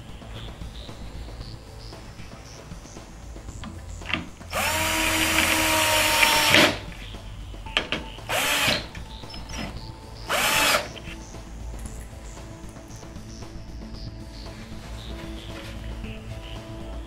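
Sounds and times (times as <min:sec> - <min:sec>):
cordless drill motor whine: 0:04.5 - 0:06.8, 0:08.2 - 0:09.0, 0:09.6 - 0:11.0.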